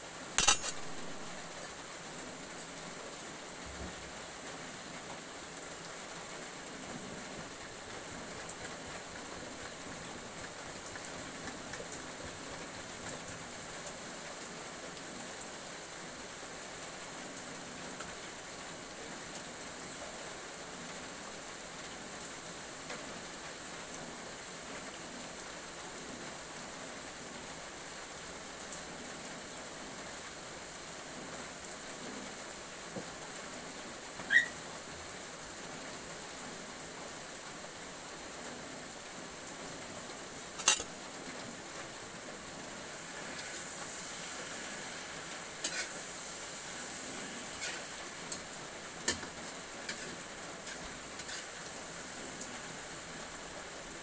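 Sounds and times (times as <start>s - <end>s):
food sizzling in wok: 0.0s - 1.9s, 40.4s - 54.0s.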